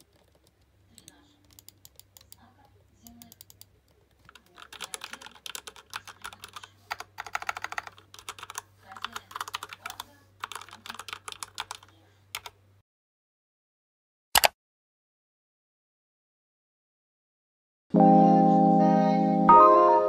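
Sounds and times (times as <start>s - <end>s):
mechanical keyboard typing: 3.0s - 12.6s.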